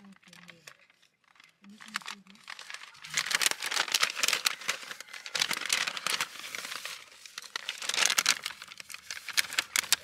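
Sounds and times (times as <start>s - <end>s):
packaging crinkling: 0.0s - 10.0s.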